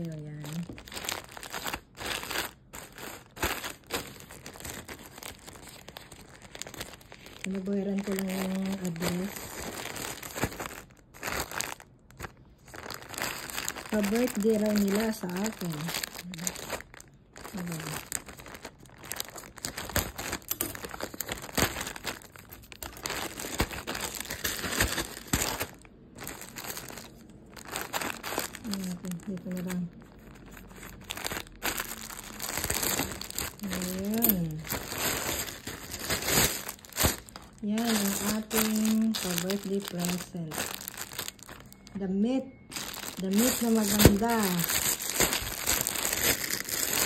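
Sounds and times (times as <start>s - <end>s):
plastic mailer bag crinkling: 0.0s - 47.0s.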